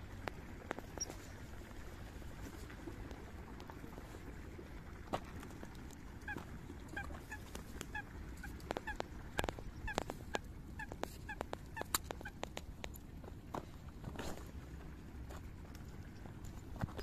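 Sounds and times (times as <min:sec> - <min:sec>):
coots calling: 0:06.2 - 0:12.5.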